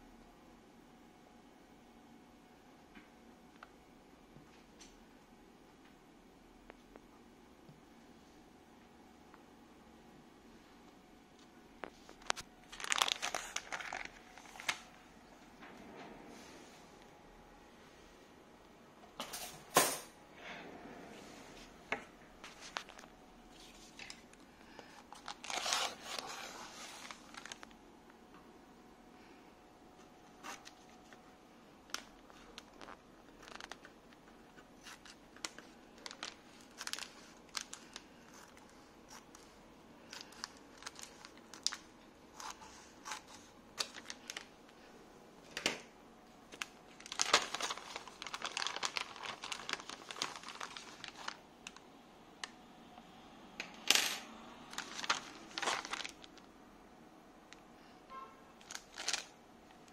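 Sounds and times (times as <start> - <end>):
plastic crinkling: 11.8 - 15.0, 22.4 - 27.8, 30.2 - 44.9, 46.5 - 51.9, 54.6 - 56.5, 58.6 - 59.9
scissors snipping plastic bag: 25.2 - 26.3.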